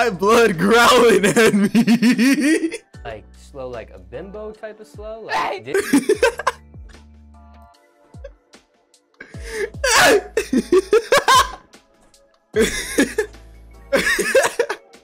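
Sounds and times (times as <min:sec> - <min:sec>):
man laughing hard: 0:00.9 - 0:02.8, 0:05.7 - 0:06.6, 0:09.4 - 0:11.6, 0:12.6 - 0:13.3, 0:14.0 - 0:14.8.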